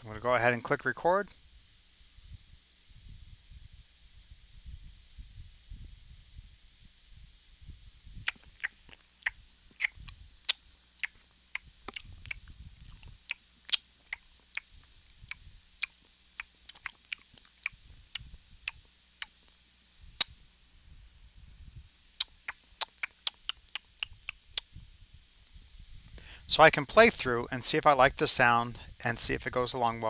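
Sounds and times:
person making chewing sounds: 8.2s - 19.6s, 22.2s - 24.7s.

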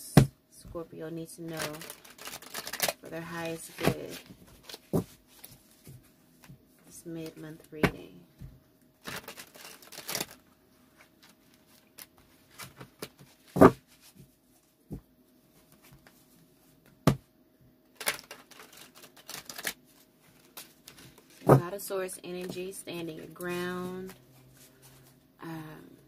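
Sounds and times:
cards being shuffled: 1.5s - 6.0s, 9.0s - 10.4s, 18.0s - 21.6s.

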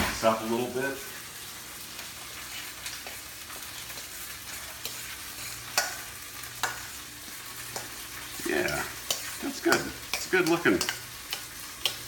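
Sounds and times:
meat sizzling in a pan: 0.0s - 12.0s
fork clicking against a plate: 5.8s - 6.0s, 8.7s - 12.0s.

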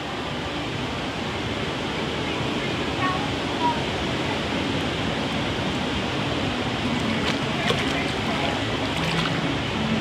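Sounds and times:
water rushing and churning: 0.0s - 10.0s
small water splashes: 6.9s - 9.6s.

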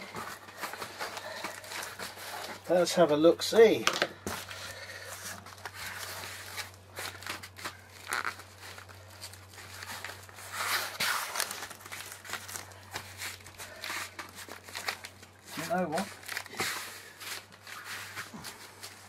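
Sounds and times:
hands rustling over foam: 4.3s - 19.0s.

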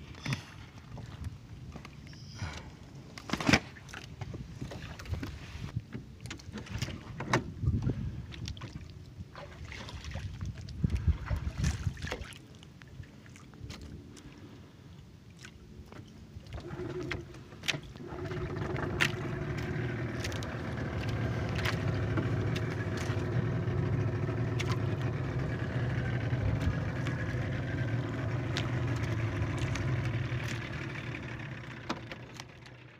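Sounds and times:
boat engine running: 9.2s - 32.9s.

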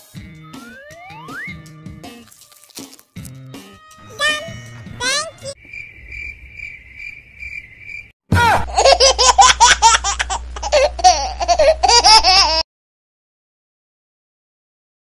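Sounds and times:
crickets chirping: 5.6s - 8.2s
high-pitched giggling laughter: 8.6s - 12.6s.

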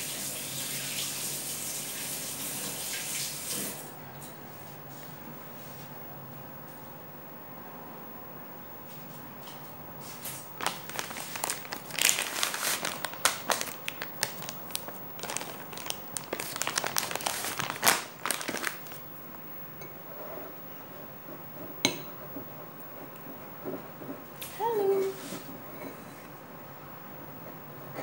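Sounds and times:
plastic bag crinkling: 10.6s - 19.1s.

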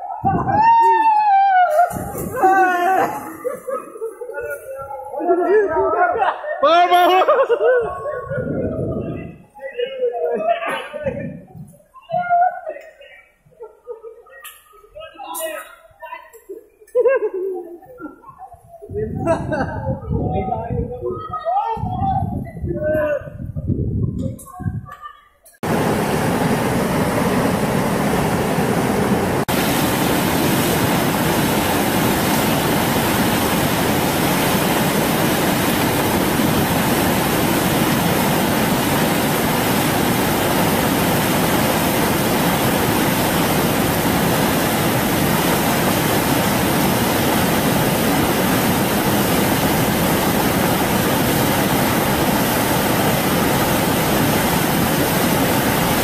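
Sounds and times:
floodwater rushing: 0.0s - 6.2s, 25.6s - 56.0s.

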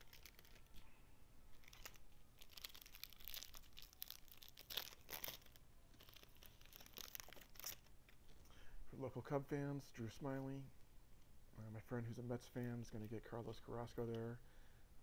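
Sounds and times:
foil wrapper crinkling and tearing: 0.0s - 0.9s, 1.5s - 7.9s.

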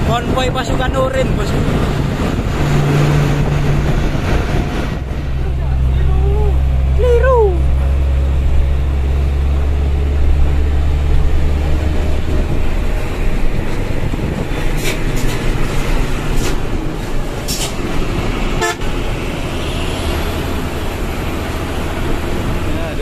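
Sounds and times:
truck diesel engine running: 0.0s - 23.0s
wind and road noise: 0.0s - 23.0s
horn toots: 18.6s - 19.0s.

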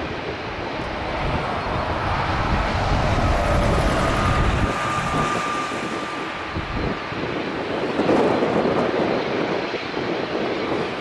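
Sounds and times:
jet airliner engines rumbling: 0.0s - 11.0s
faint high whine: 0.2s - 8.4s.

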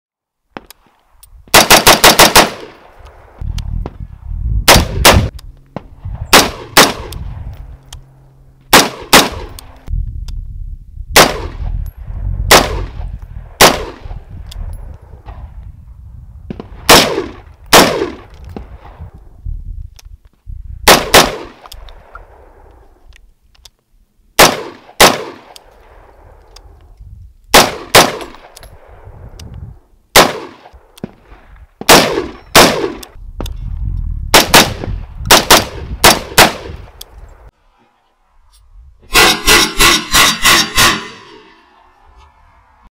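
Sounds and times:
rifle shots echoing: 1.5s - 2.9s, 4.7s - 5.3s, 6.3s - 7.4s, 8.7s - 9.8s, 11.2s - 11.7s, 12.5s - 14.2s, 16.5s - 18.3s, 20.8s - 22.4s, 24.4s - 26.0s, 27.5s - 28.9s, 30.1s - 31.2s, 31.8s - 33.2s, 34.3s - 36.9s.

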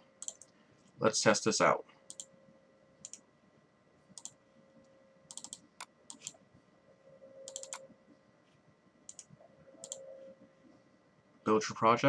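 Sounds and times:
low steady hum: 0.0s - 12.0s
computer keys clicking: 0.2s - 0.6s, 2.1s - 2.3s, 3.0s - 3.2s, 4.2s - 4.4s, 5.3s - 6.4s, 7.4s - 7.9s, 9.1s - 10.1s
mouse buttons clicking: 5.3s - 6.4s, 7.5s - 7.9s, 9.1s - 10.1s.

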